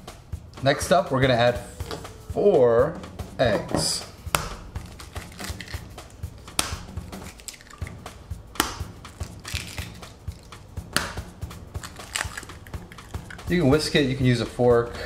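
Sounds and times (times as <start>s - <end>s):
background music with steady beat: 0.0s - 15.0s
eggshells cracking: 4.4s - 13.5s.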